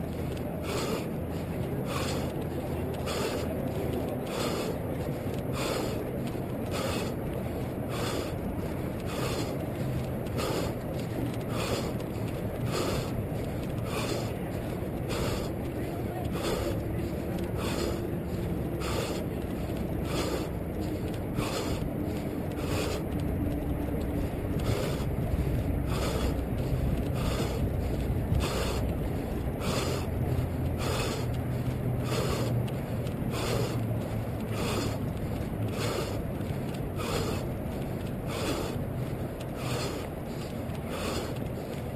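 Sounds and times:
running footsteps hiss: 0:00.0 - 0:41.9
steady low rumble: 0:00.0 - 0:41.9.

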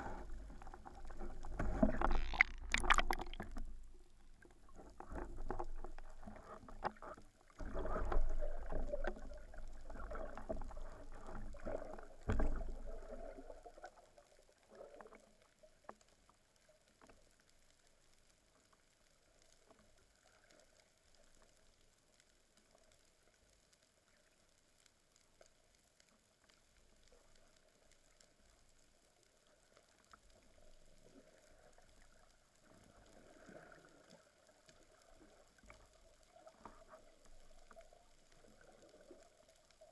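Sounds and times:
water sloshing: 0:00.0 - 0:13.2
water rushing and bubbling: 0:00.0 - 0:15.4
faint clicks: 0:00.0 - 0:39.9.

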